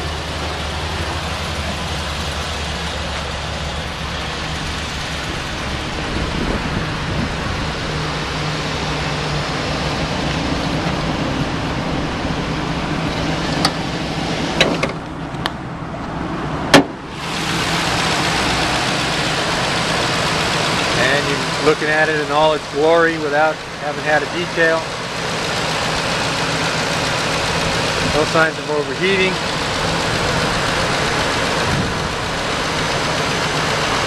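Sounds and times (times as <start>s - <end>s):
truck engine idling: 0.0s - 34.0s
hood opening clunk: 14.5s - 15.6s, 16.7s - 17.1s.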